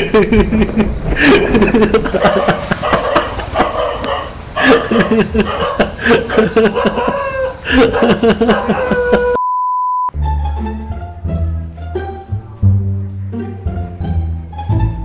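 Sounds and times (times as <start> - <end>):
steady beep: 9.4 - 10.1
plucked-string background music: 10.1 - 15.0.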